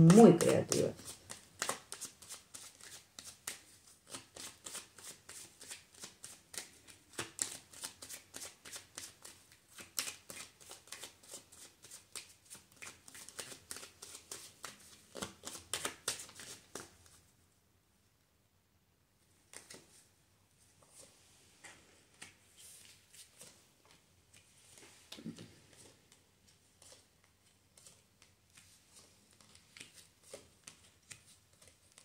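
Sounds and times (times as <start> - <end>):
cards being shuffled: 0.0 - 17.2, 19.5 - 20.0, 26.8 - 32.0.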